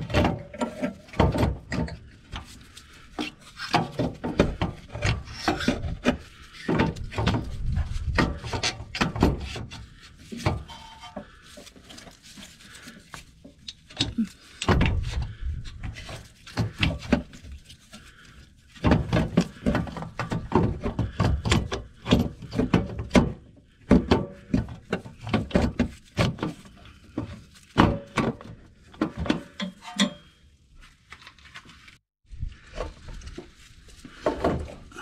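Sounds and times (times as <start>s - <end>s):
metal knocks clunks and scrapes: 0.0s - 32.0s, 32.6s - 35.0s.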